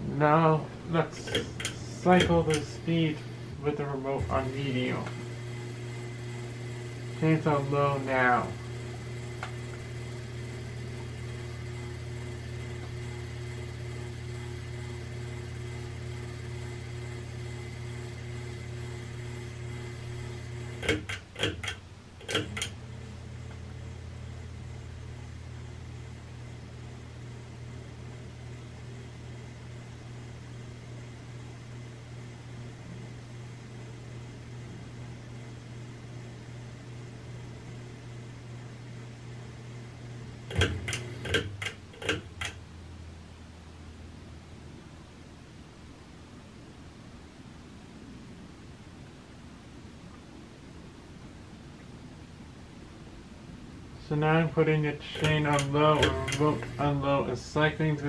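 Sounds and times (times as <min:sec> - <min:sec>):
ceiling fan motor humming: 0:00.0 - 0:58.0
sharp clicks: 0:55.1 - 0:56.8.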